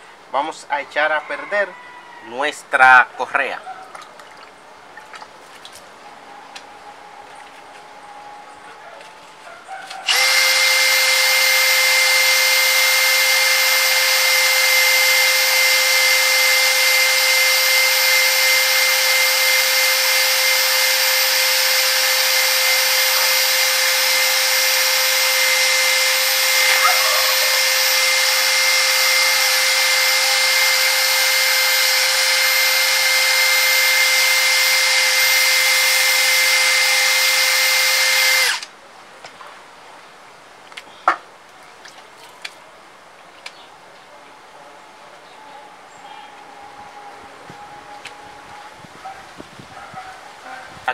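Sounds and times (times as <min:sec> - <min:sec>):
power tool sanding metal: 0:10.1 - 0:38.7.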